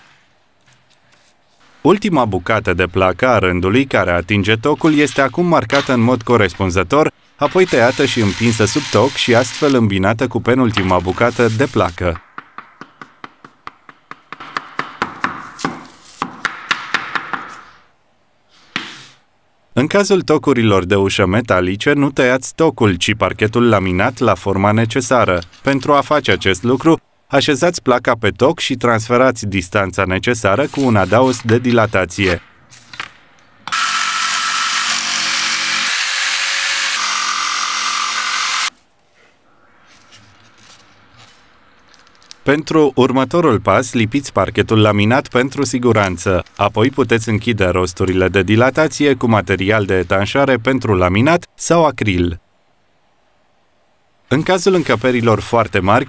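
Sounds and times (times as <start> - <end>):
hammer tapping wooden block: 12.2 - 17.6
electric jigsaw cutting board: 33.7 - 38.7.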